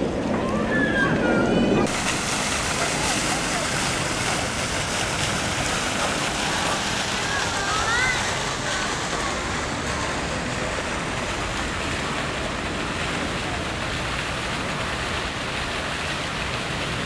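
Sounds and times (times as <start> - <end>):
steady outdoor rushing noise: 0.0 - 17.0.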